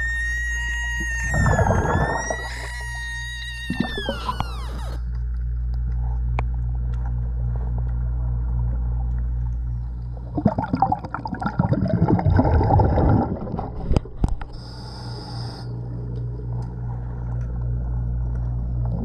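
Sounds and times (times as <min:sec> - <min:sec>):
steady low hum: 0:00.0 - 0:19.0
exhaled bubbles underwater: 0:01.1 - 0:03.0, 0:03.6 - 0:04.5, 0:08.5 - 0:14.6, 0:15.8 - 0:19.0
regulator inhale hiss: 0:14.6 - 0:15.7.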